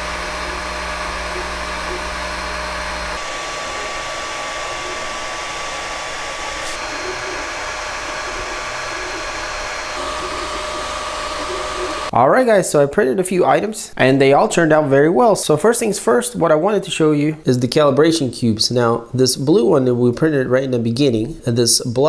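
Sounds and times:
faint motor whine: 0:00.0 - 0:12.1
cooling fans whirring: 0:00.0 - 0:12.2.

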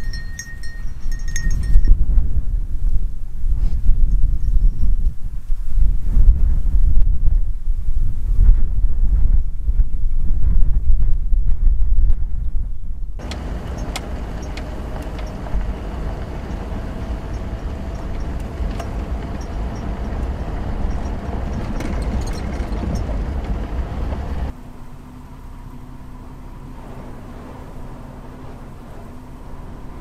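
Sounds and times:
tyre and road rumble: 0:13.0 - 0:24.6.

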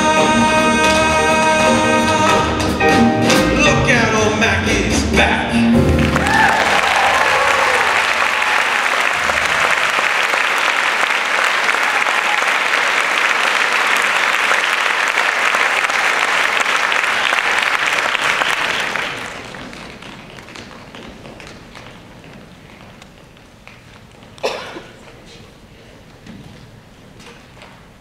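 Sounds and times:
audience applauding: 0:05.9 - 0:20.7.

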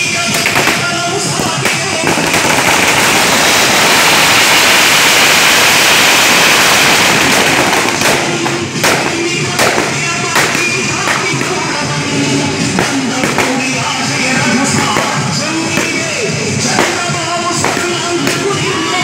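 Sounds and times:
music: 0:00.0 - 0:03.4, 0:07.2 - 0:19.0
firecrackers crackling: 0:00.0 - 0:19.0.

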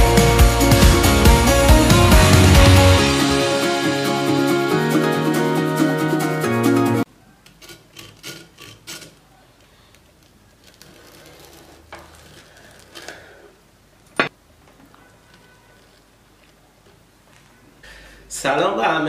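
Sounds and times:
background music: 0:00.0 - 0:07.1
knife crunching through fried chicken: 0:09.9 - 0:13.2.

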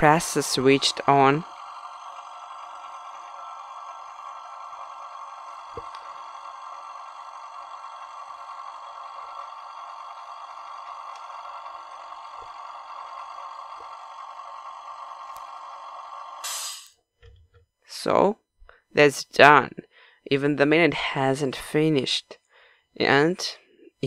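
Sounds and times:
air compressor humming: 0:00.0 - 0:17.5.

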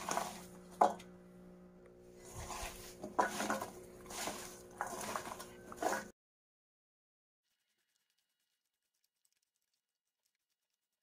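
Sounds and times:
carrot pieces tossed in steel bowl: 0:02.4 - 0:06.1.

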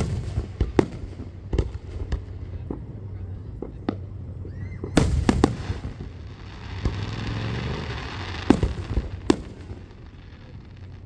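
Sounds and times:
fireworks bangs: 0:00.0 - 0:11.0
fireworks hiss: 0:05.0 - 0:11.0.

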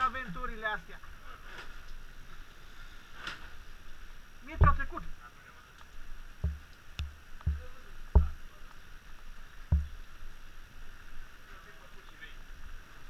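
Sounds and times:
faint rain hiss: 0:00.0 - 0:13.0
dull thumps: 0:04.6 - 0:05.0, 0:06.4 - 0:08.4, 0:09.7 - 0:10.1.

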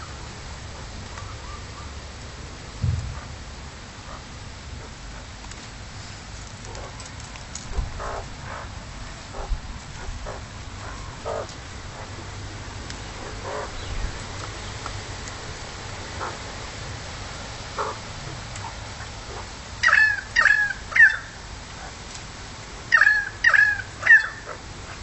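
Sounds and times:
magpies calling: 0:00.0 - 0:02.0, 0:07.9 - 0:12.2, 0:13.0 - 0:14.8, 0:16.1 - 0:16.4, 0:17.7 - 0:22.0, 0:22.9 - 0:25.0
low background noise: 0:00.0 - 0:25.0.

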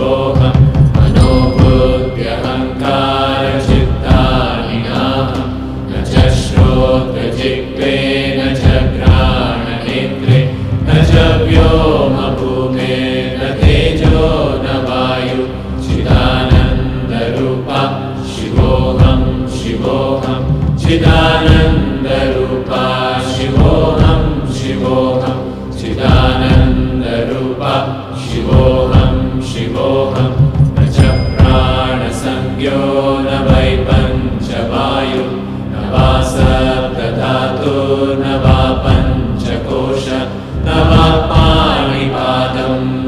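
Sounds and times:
devotional chanting: 0:00.0 - 0:43.0
instrumental music: 0:00.0 - 0:43.0.

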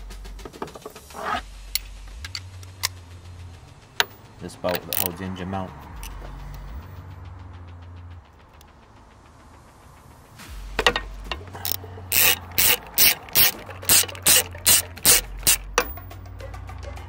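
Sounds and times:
ratchet wrench clicks: 0:00.5 - 0:03.0, 0:04.0 - 0:05.3, 0:06.0 - 0:06.7, 0:10.8 - 0:16.2
ratchet wrench rasping: 0:04.0 - 0:05.3, 0:05.9 - 0:06.7, 0:10.8 - 0:16.2.

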